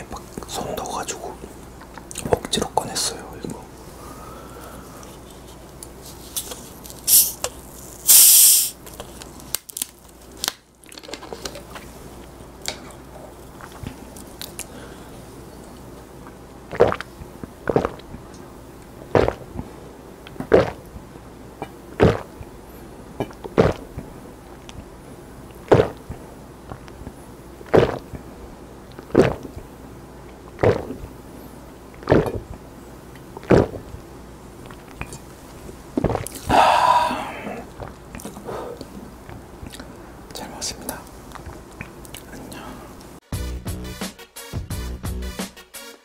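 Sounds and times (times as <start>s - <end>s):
person gulping from a bottle: 16.2s - 18.3s, 19.1s - 19.7s, 20.3s - 20.9s, 21.6s - 22.5s, 23.2s - 24.8s, 25.6s - 28.3s, 28.9s - 29.6s, 30.6s - 31.0s, 32.0s - 32.5s, 33.4s - 33.9s, 36.0s - 39.0s
loud throat sound: 19.1s - 19.5s, 20.4s - 20.8s, 21.6s - 22.3s, 27.7s - 28.0s, 29.1s - 29.5s, 30.6s - 31.0s, 36.1s - 37.7s.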